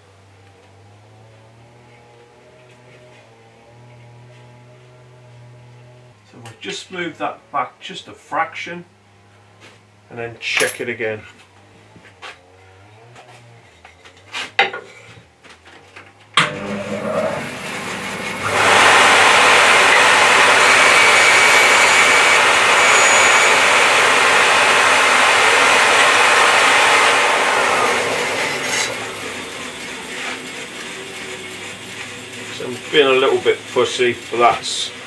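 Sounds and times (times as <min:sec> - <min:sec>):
bandsaw cutting timber: 0:00.8 - 0:07.3, 0:16.4 - 0:35.0.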